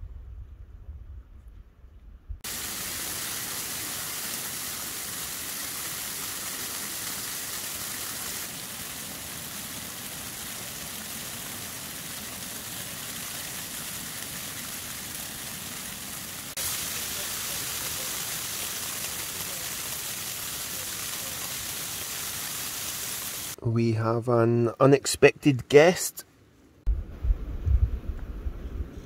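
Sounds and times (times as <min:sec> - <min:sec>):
snow hissing on tent: 0:02.4 - 0:23.6.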